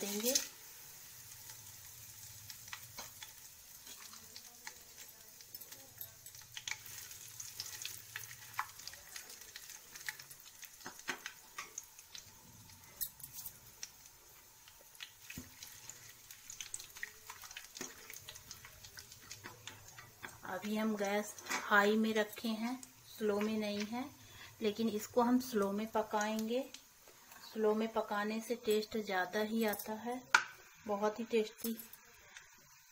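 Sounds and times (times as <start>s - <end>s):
oil crackling and popping: 0.0s - 29.1s, 29.8s - 30.8s, 31.8s - 32.9s
spices sizzling in hot oil: 0.0s - 32.9s.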